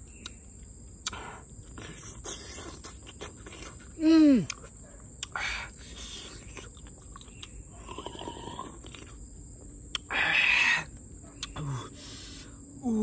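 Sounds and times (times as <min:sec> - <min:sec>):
person slurping snails: 0:01.0 - 0:09.2.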